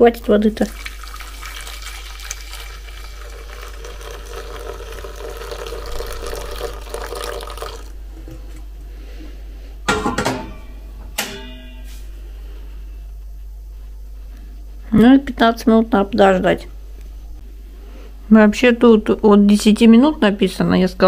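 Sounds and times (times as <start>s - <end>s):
water pouring into a pot: 0.6s - 8.0s.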